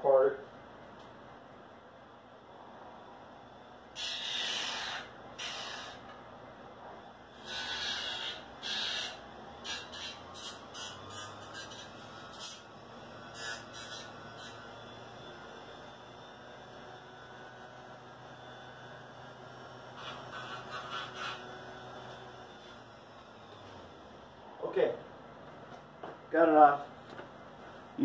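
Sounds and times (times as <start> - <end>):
grinder grinding plastic: 7.3 - 16.0, 16.6 - 24.2.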